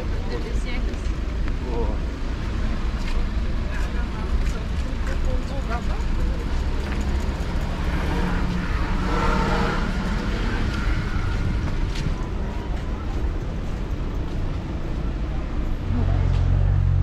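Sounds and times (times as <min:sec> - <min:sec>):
car traffic rumble: 0:00.0 - 0:17.0
passersby talking: 0:00.0 - 0:17.0.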